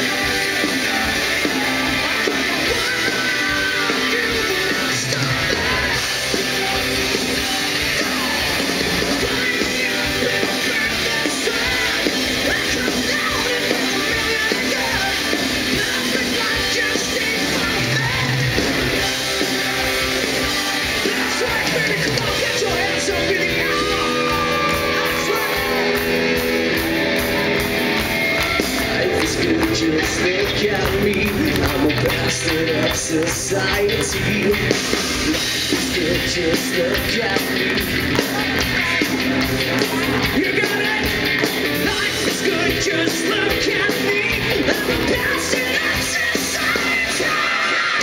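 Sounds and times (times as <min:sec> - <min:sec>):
live hard rock band: 0:00.0 - 0:48.0.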